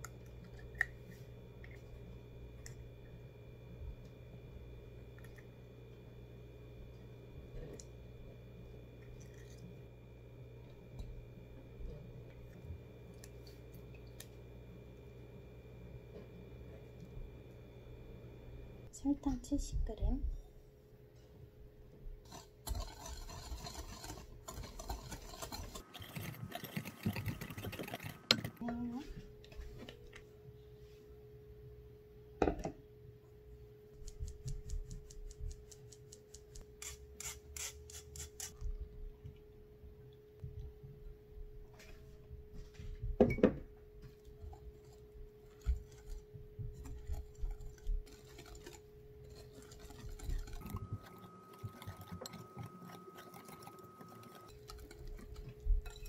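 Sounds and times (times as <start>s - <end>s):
faint steady hum: 0.0s - 56.0s
whisk scraping glass bowl: 22.3s - 28.6s, 44.4s - 56.0s
flour sifting through metal sieve: 22.3s - 29.1s, 46.8s - 56.0s.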